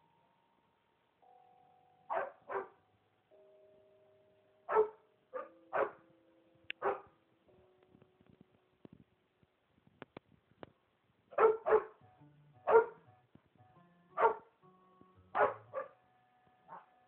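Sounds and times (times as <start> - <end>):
dog barking: 2.1 - 2.8, 4.7 - 6.0, 6.8 - 7.2, 11.3 - 12.0, 12.7 - 13.0, 14.2 - 14.5, 15.4 - 16.0, 16.7 - 16.9.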